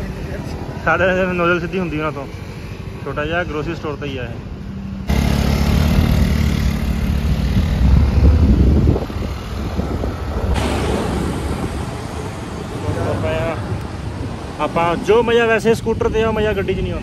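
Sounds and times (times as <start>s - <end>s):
road noise: 0.0s - 17.0s
motor scooter engine running: 5.1s - 9.2s
wind on the microphone: 7.2s - 15.0s.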